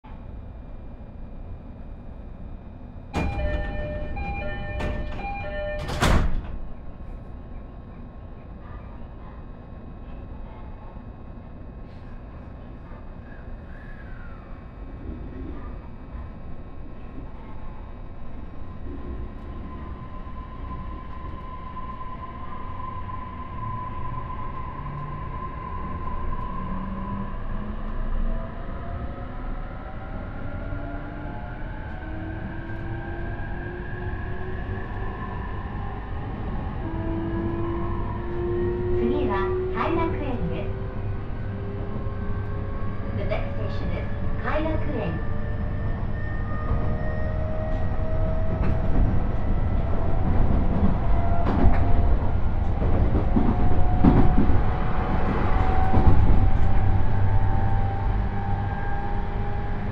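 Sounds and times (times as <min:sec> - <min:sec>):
train low hum: 0:00.0 - 0:59.9
two-note door chime: 0:03.2 - 0:06.2.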